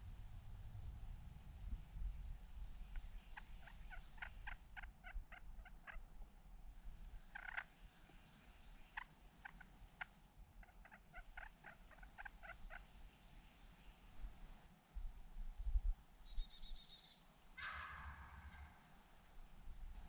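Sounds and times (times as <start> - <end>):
faint turkey yelping: 2.9 - 6.2, 7.2 - 13.0, 16.2 - 19.0.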